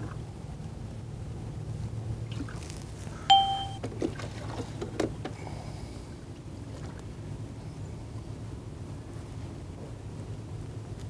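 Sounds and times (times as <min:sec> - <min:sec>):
low steady hum: 0:00.0 - 0:11.0
sharp metallic ding: 0:03.3 - 0:03.8.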